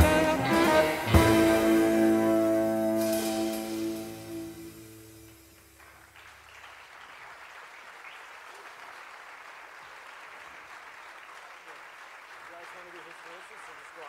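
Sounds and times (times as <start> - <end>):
jazz band chord ringing: 0.0 - 5.7
audience applauding: 5.2 - 14.0.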